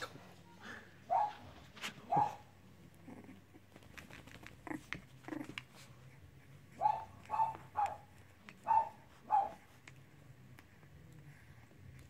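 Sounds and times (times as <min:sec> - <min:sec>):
puppy yip: 0:01.1 - 0:01.5, 0:02.1 - 0:02.5, 0:06.7 - 0:09.6
small paws scuffling: 0:01.1 - 0:12.0
puppy growly calls: 0:02.2 - 0:03.7, 0:04.4 - 0:09.7.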